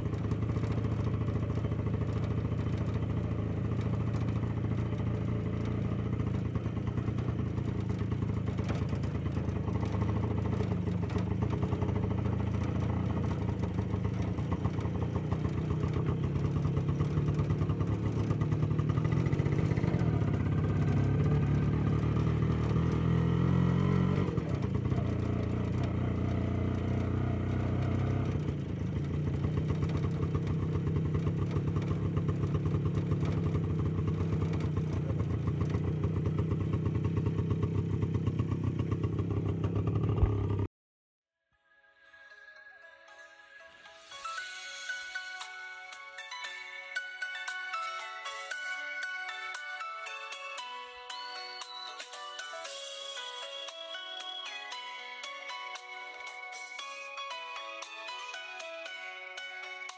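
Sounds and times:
vehicle engine running: 0.0s - 40.7s.

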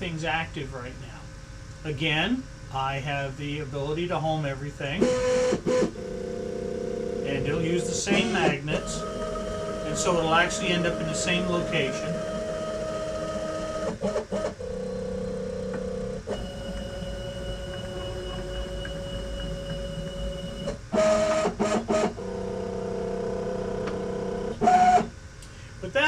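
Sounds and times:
motor whine: 5.1s - 25.1s.

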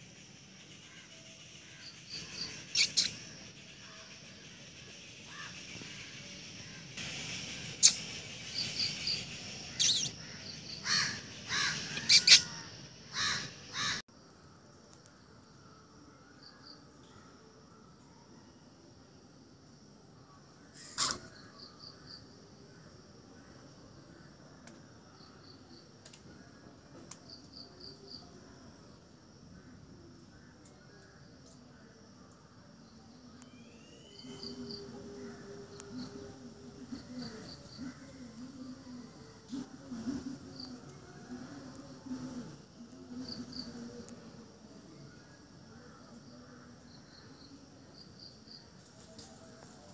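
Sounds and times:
quick insect chirps: 0.0s - 14.0s, 20.2s - 49.9s
faint outdoor background: 0.0s - 49.9s
insect chorus drone: 0.0s - 49.9s
small animal chirping: 2.3s - 3.4s, 7.7s - 10.2s, 12.0s - 12.6s, 20.8s - 21.3s.

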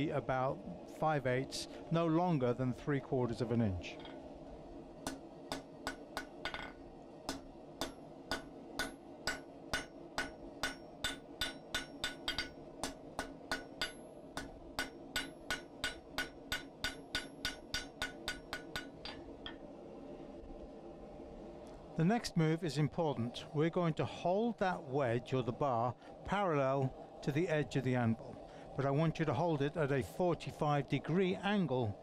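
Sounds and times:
low hum: 0.0s - 32.0s
hammer ringing on hot metal: 5.0s - 19.6s.

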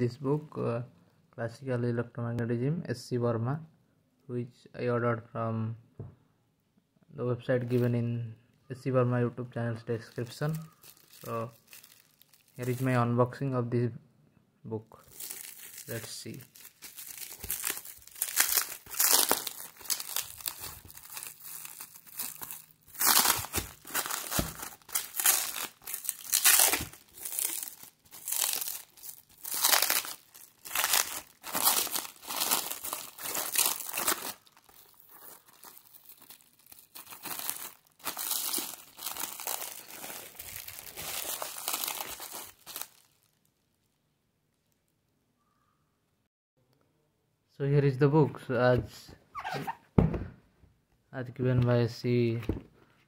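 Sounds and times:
plastic shrink wrap crinkling: 10.0s - 13.0s, 15.0s - 44.0s.

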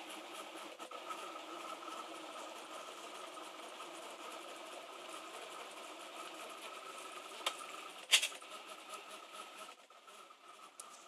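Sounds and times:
stepper motors whirring: 0.0s - 11.0s.

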